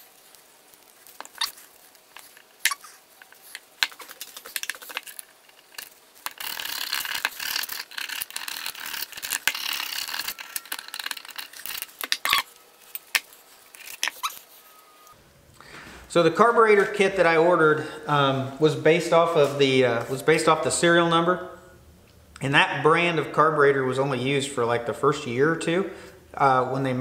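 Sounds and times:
blade scraping gasket residue: 2.2 - 14.5.

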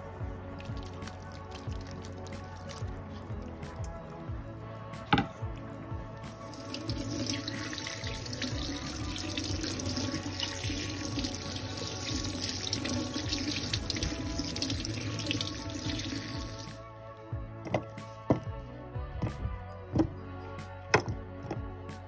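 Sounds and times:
tap water splashing in sink: 6.4 - 16.8.

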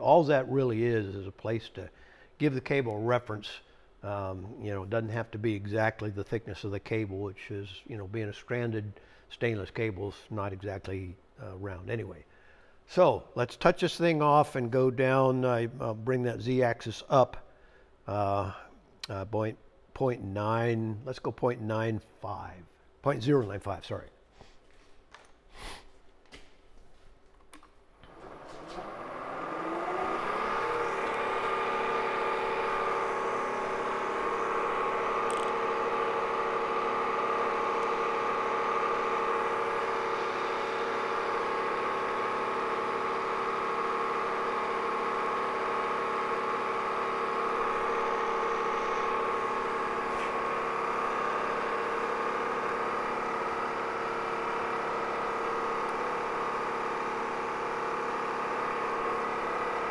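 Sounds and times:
milling machine spindle whine: 28.0 - 59.9.

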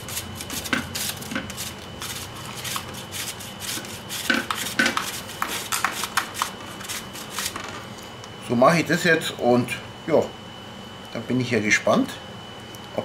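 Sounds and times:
cucumber grated on metal grater: 0.0 - 7.5.

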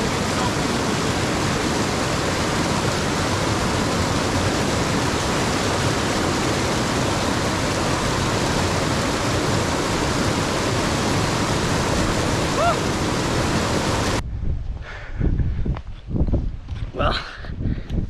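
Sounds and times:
mountain stream rushing: 0.0 - 14.2.

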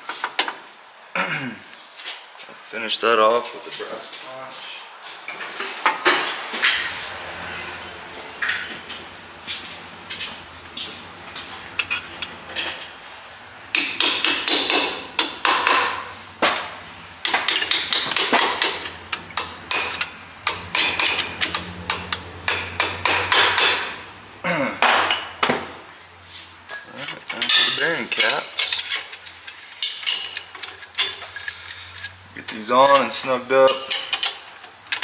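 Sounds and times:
hammer striking steel: 13.7 - 16.1, 17.3 - 24.0.

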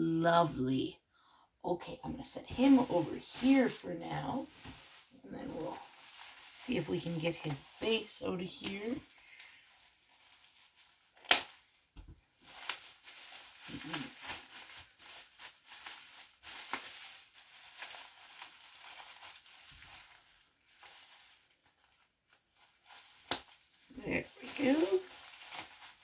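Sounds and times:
bubble wrap crinkling: 2.2 - 26.0
sharp crack: 11.2 - 11.6.

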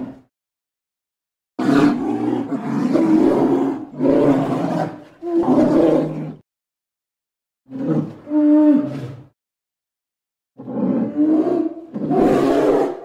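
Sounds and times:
bear roaring: 1.6 - 6.4, 10.6 - 13.0.

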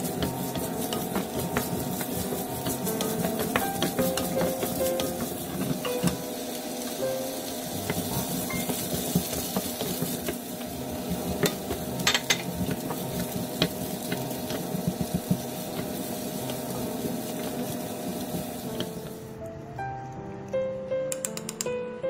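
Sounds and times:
wooden spatula scraping a pan: 0.0 - 5.9, 7.7 - 19.0
vegetables sizzling in oil: 0.0 - 19.2.

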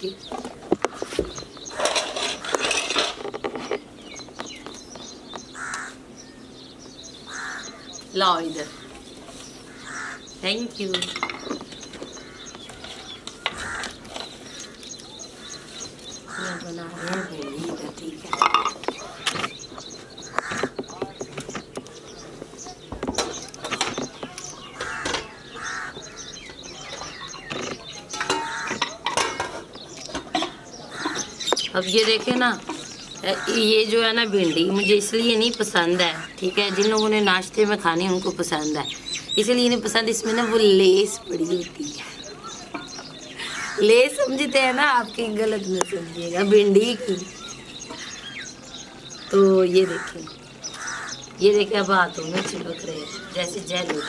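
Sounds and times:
small birds chirping: 0.0 - 54.0
crows cawing: 5.5 - 6.1, 7.2 - 17.8, 20.0 - 21.1, 24.6 - 27.5, 28.1 - 31.6, 32.8 - 34.6, 35.7 - 37.3, 40.0 - 41.2, 42.2 - 44.4, 46.8 - 51.7.

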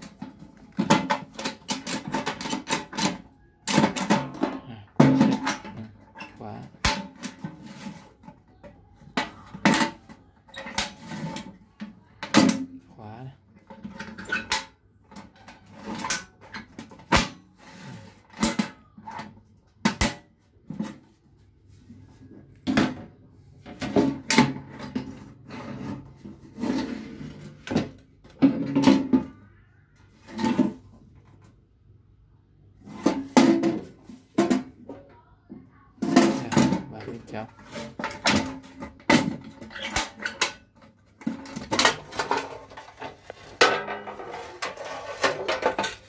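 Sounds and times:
metal toolbox clanking: 36.0 - 40.6, 41.2 - 46.0.

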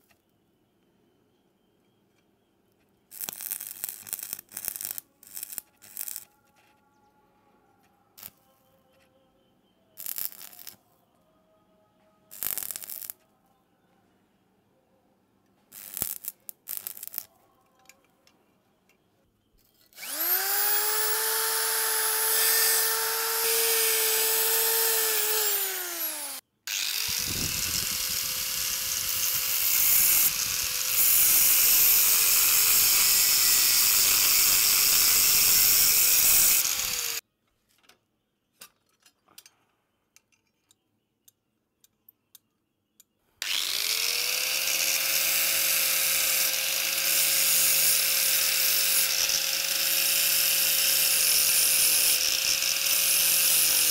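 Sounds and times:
arc welding crackle: 3.1 - 6.3, 8.2 - 8.4, 10.0 - 10.8, 12.3 - 13.2, 15.7 - 17.3, 22.4 - 37.2
grinder cutting steel: 3.1 - 6.4, 10.0 - 10.8, 12.3 - 13.2, 15.7 - 17.3, 19.9 - 37.2, 43.4 - 53.9
angle grinder whining: 19.9 - 37.2, 43.4 - 53.9.

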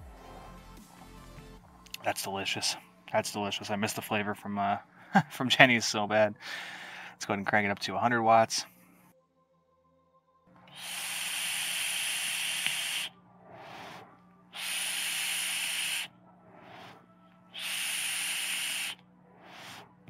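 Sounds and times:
breathy swells: 10.7 - 20.0
vape atomizer hissing and sizzling: 10.7 - 20.0.

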